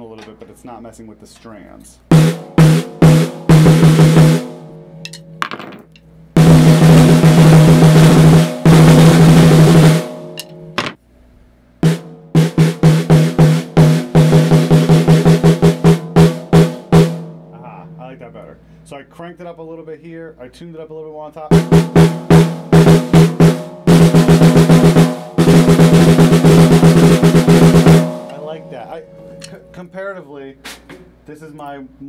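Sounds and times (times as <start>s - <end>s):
snare drum played with sticks: 2.1s - 4.6s, 6.4s - 10.9s, 11.8s - 17.3s, 21.5s - 28.6s.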